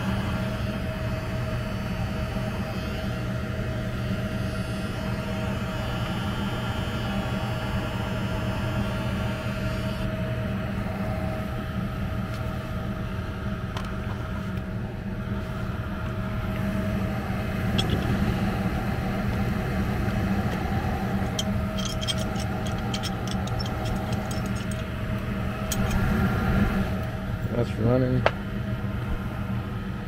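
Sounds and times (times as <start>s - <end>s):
furnace humming: 0.0s - 30.0s
metallic clinks of hand tools: 21.3s - 24.8s.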